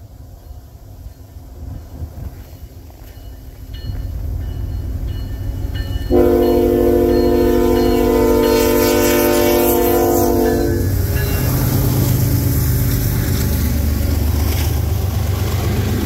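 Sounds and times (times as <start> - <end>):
locomotive and wheels rumbling: 0.0 - 16.0
locomotive air horn chord: 6.1 - 11.1.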